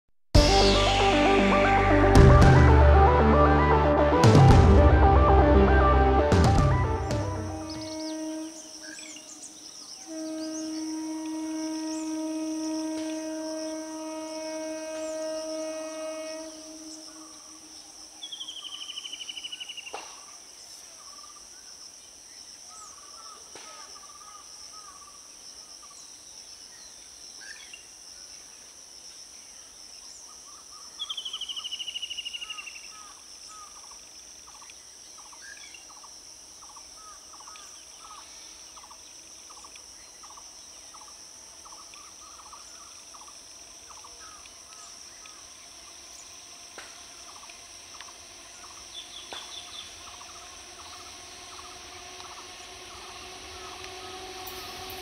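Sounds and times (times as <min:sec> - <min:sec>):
distant train horn: 0:00.4 - 0:18.0, 0:41.6 - 0:55.0
high-pitched insect buzzing: 0:06.9 - 0:19.0, 0:37.0 - 0:55.0
bird calls: 0:07.0 - 0:20.3, 0:34.6 - 0:55.0.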